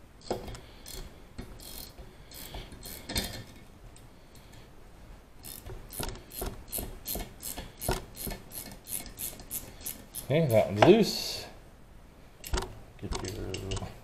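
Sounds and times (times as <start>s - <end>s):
ratchet clicking: 0.2s - 3.5s, 5.4s - 10.4s.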